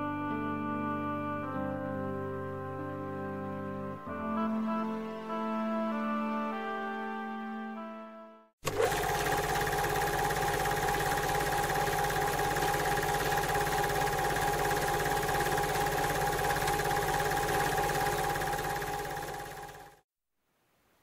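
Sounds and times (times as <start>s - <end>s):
fast even rattle: 8.6s - 20.0s.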